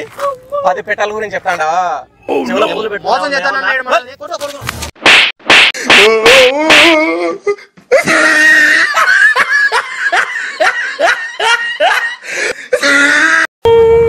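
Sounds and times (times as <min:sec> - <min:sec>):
person laughing: 0:05.8 - 0:13.4.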